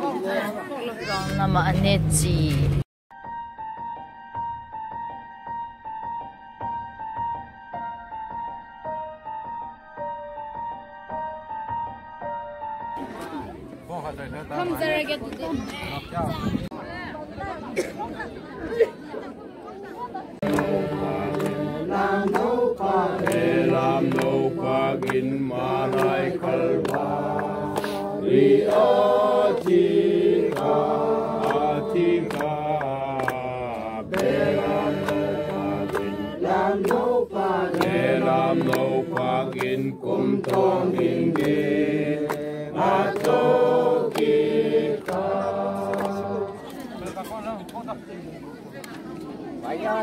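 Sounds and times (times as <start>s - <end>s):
crowd singing without instruments: 20.4s - 47.2s.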